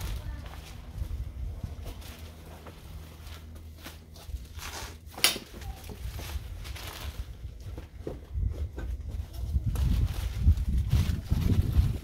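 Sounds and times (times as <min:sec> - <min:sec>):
plastic bags rustling: 0:00.0 - 0:12.0.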